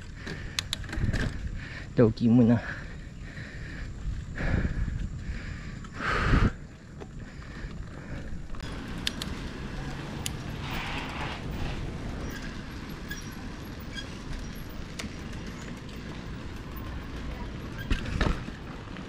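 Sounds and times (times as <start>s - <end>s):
motor traffic passing: 0.0s - 19.0s
tyres and wind rumble: 0.0s - 19.0s
sharp clicks: 0.5s - 1.0s, 9.0s - 9.4s.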